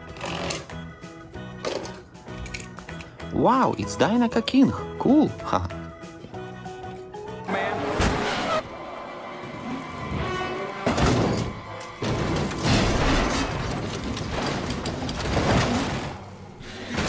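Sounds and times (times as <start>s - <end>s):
soundtrack music: 0.0s - 16.5s
crashing and thudding effects: 10.8s - 17.0s.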